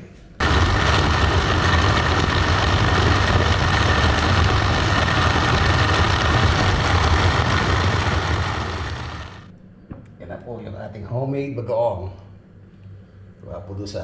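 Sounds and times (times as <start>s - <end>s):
faint steady whine: 0.1s - 14.0s
blender motor running: 0.4s - 9.5s.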